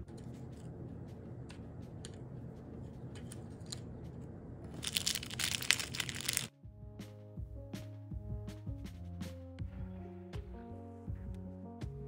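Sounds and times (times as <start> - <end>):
music: 0.0 - 4.2, 4.9 - 12.0
plastic bag crinkling: 4.7 - 6.5
small plastic pieces clicking: 4.7 - 6.5.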